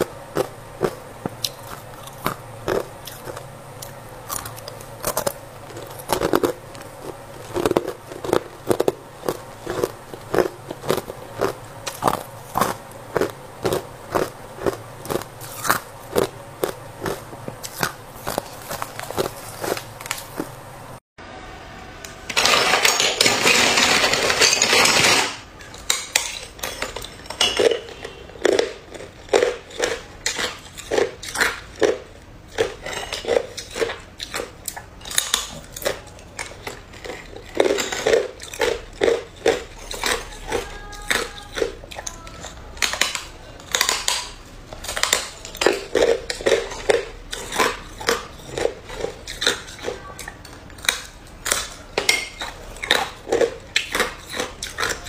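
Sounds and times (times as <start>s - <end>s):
ice crunching in mouth: 0.0s - 20.6s
loud crackling noise: 0.0s - 21.0s.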